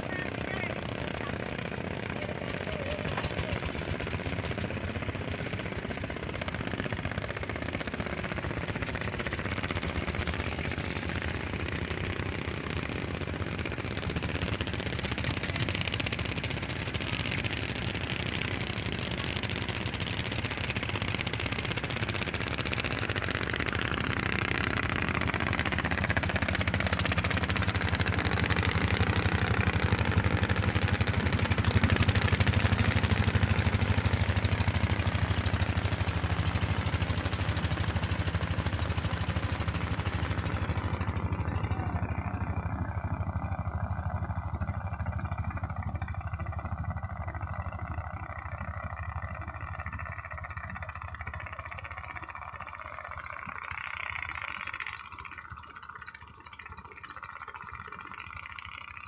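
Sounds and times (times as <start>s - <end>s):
boat motor running: 0.0s - 59.0s
water rushing along hull: 19.5s - 48.9s.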